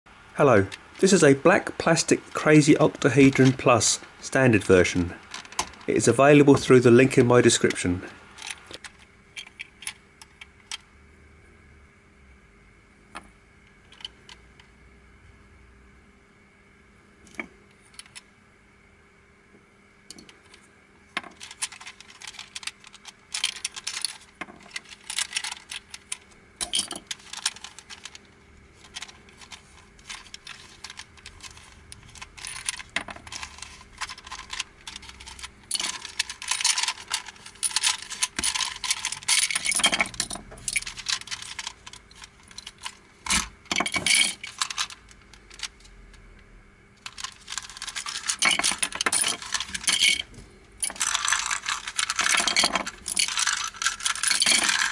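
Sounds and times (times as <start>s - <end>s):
plastic puzzle pieces clicking: 21.2s - 28.2s, 28.8s - 39.9s, 40.8s - 45.8s, 50.8s - 54.9s
plastic pieces dropped on pile: 50.8s - 54.9s.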